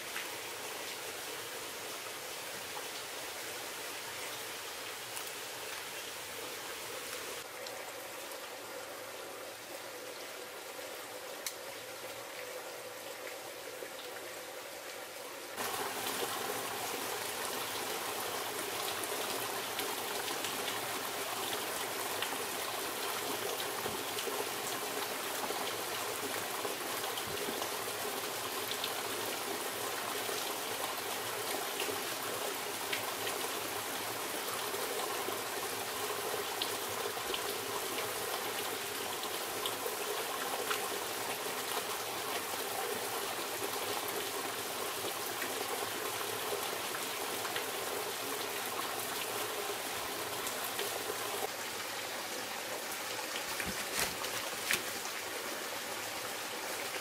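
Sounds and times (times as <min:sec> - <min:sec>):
rushing water: 0:00.0 - 0:57.0.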